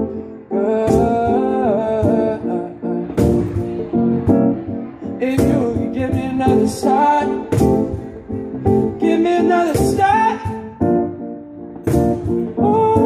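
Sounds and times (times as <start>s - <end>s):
man singing into microphone: 0.0s - 3.2s, 5.0s - 8.2s, 8.8s - 10.9s, 12.5s - 13.0s
guitar: 0.0s - 13.0s.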